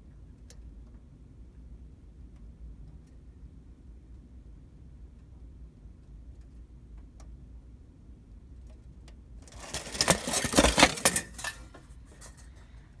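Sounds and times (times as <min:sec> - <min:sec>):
metal blind slats clattering: 0:09.6 - 0:11.7.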